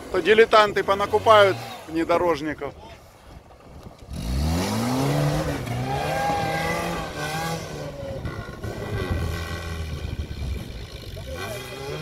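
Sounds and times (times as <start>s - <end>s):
car engine revving: 4.0s - 12.0s.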